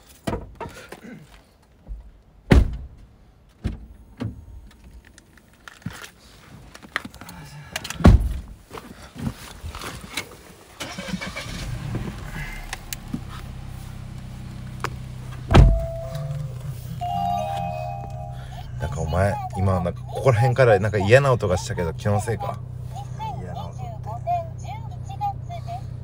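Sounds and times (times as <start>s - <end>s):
car engine starting and idling: 3.8s - 26.0s
car doors shutting: 10.1s - 18.7s.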